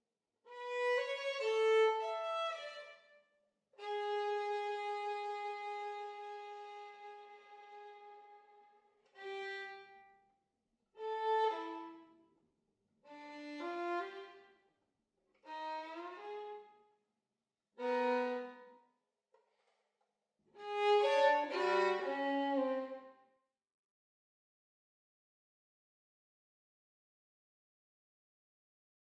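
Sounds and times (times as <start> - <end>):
solo violin phrases: 3.8 - 8.6, 17.8 - 18.6, 20.6 - 23.1.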